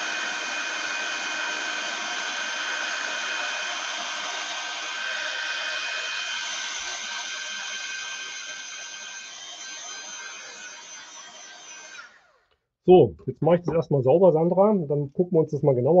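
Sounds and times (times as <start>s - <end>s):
heat gun fan whining: 0.0s - 12.6s.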